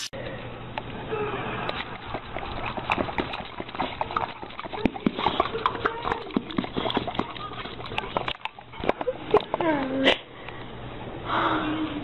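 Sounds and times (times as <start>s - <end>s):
dog mouth noises: 1.6s - 10.2s
dog paws clicking: 2.2s - 9.9s.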